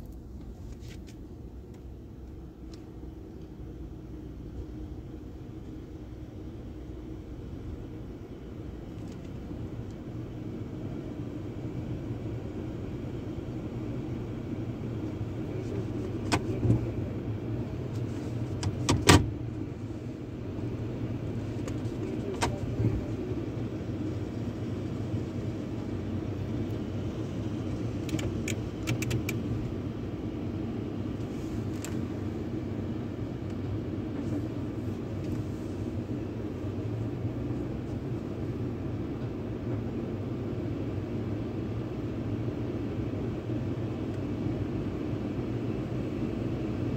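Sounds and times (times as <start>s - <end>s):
low hum of truck and car wash: 0.0s - 46.9s.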